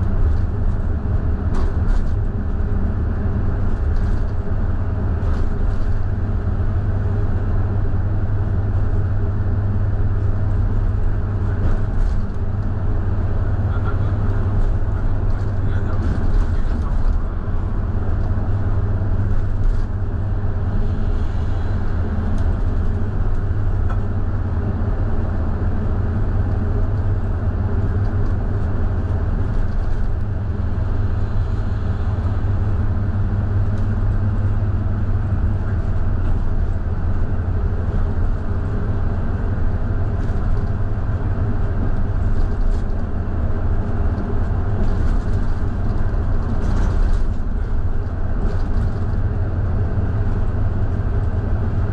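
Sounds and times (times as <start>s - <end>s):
bus diesel engine droning: 0.0s - 51.9s.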